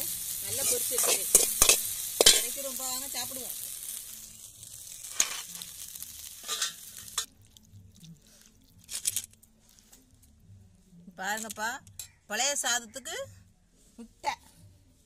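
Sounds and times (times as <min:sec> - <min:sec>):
egg sizzling in a pan: 0:00.0 - 0:07.7
spatula scraping and knocking pan: 0:00.6 - 0:02.6.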